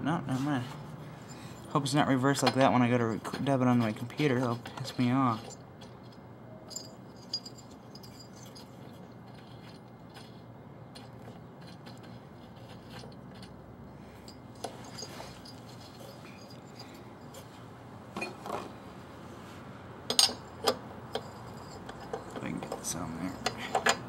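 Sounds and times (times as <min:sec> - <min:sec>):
wrench clinking on metal: 0:04.2 - 0:10.3, 0:20.1 - 0:24.0
metal clicks and scrapes: 0:07.7 - 0:13.6, 0:20.1 - 0:24.0.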